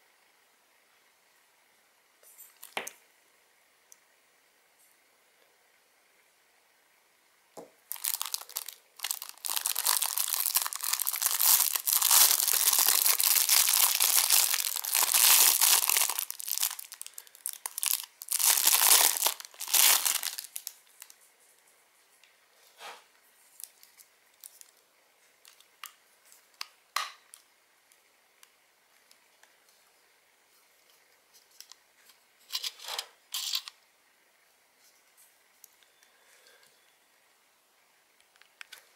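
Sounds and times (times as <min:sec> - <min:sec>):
plastic bag crinkling: 0:07.8 - 0:21.2.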